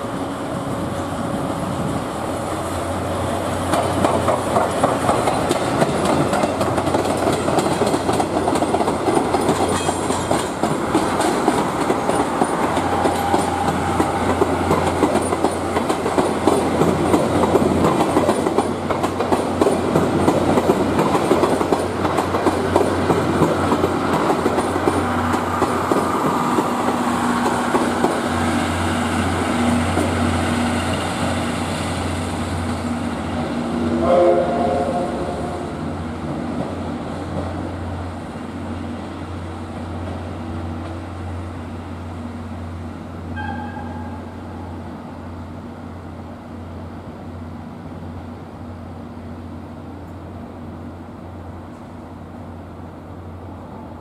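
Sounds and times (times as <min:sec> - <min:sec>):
train wheels clicking over rail joints: 0:03.6 - 0:32.9.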